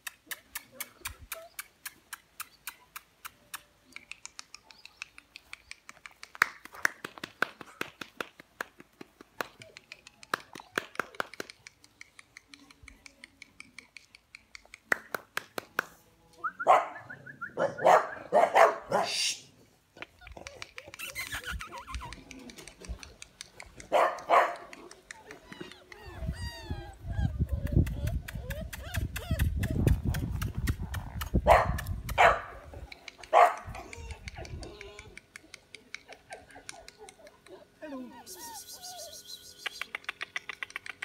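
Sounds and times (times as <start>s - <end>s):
puppies yipping and barking: 20.1s - 41.0s.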